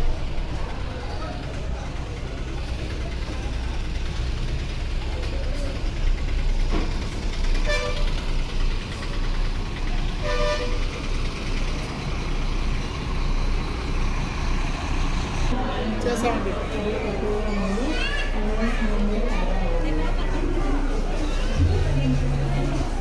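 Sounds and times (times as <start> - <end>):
bus engines rumbling: 0.0 - 23.0
vehicle horn toots: 7.6 - 8.1, 10.2 - 10.9.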